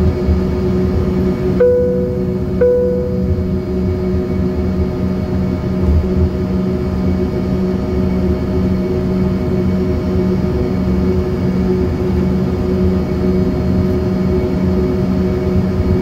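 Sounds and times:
jet engines humming and whining: 0.0s - 16.0s
low rumble: 1.6s - 4.0s.

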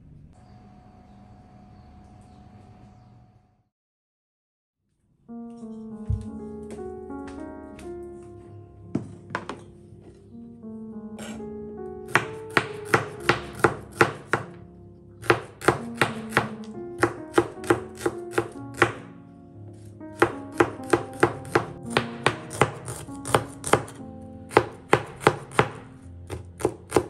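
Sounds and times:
knife knocking on cutting board: 8.9s - 9.7s.

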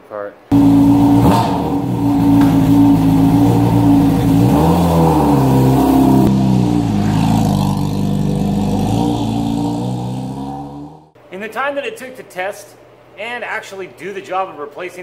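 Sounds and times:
motorcycle engine revving: 0.5s - 11.2s.

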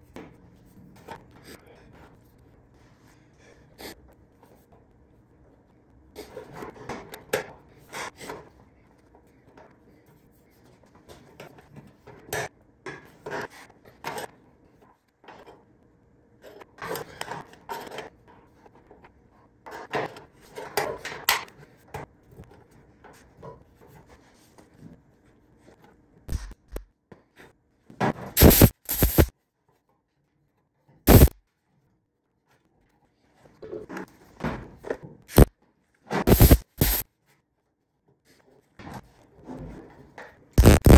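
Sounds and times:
tack welding bursts: 28.4s - 29.3s, 31.1s - 31.3s, 36.3s - 37.0s, 40.6s - 40.9s.

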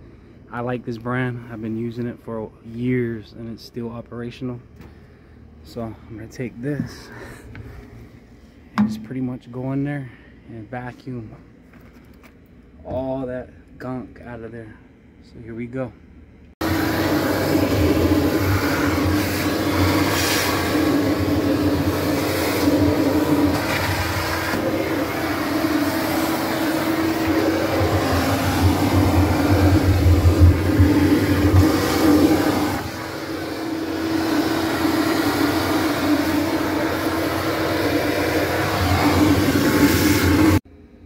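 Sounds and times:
shop vacuum running: 16.6s - 40.6s.

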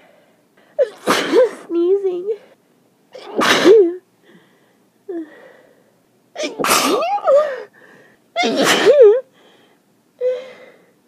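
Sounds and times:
person sneezing: 0.8s - 1.7s, 3.2s - 4.0s, 6.4s - 7.7s, 8.4s - 9.2s
person breathing: 4.2s - 6.0s, 7.3s - 8.3s, 9.3s - 11.0s.

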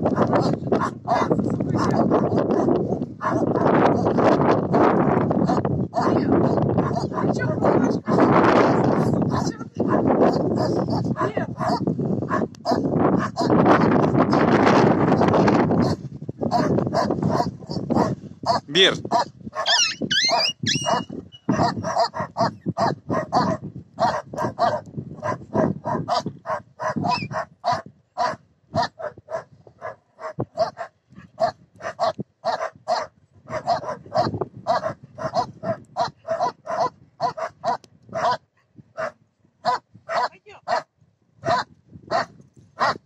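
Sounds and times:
dogs barking and yapping: 0.0s - 43.0s
dog high squeals: 19.6s - 21.6s, 27.0s - 27.4s.

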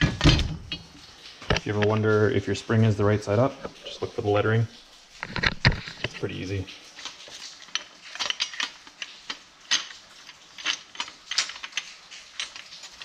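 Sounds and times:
metal parts clicking and clinking: 6.9s - 13.0s.

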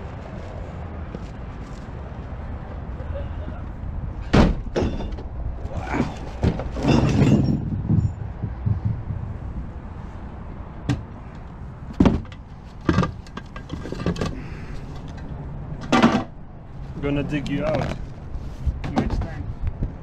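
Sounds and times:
low background rumble: 3.2s - 20.0s
gear knocking in truck bed: 6.0s - 9.4s.

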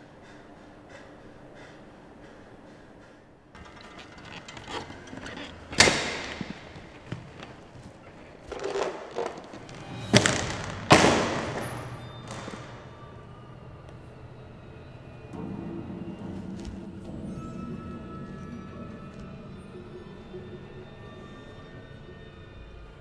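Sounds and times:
small knocks: 3.6s - 12.8s
loud echoing thuds: 9.6s - 13.0s.

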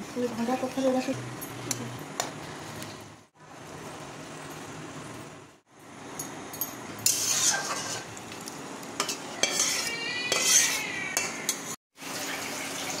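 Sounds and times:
curry sizzling: 0.0s - 13.0s
metal spoon scraping a pan: 7.0s - 8.2s, 9.0s - 11.8s
metal rubbing squeal: 9.4s - 11.1s.

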